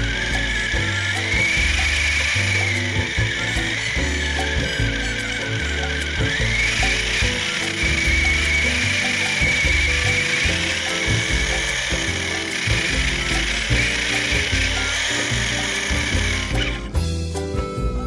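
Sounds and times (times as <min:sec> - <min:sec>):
toy car motor and gears whirring: 0:00.0 - 0:17.0.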